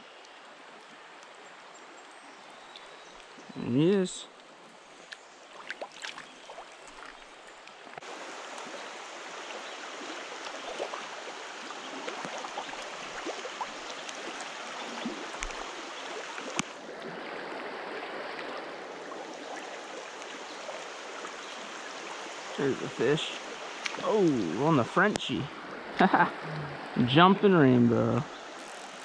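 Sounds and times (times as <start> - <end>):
stream water rushing: 0.0 - 29.0.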